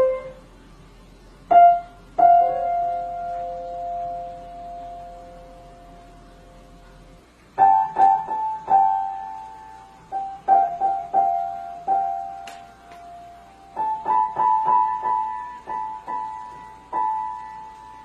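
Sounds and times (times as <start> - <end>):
piano notes struck by a cat: 7.6 - 18.0.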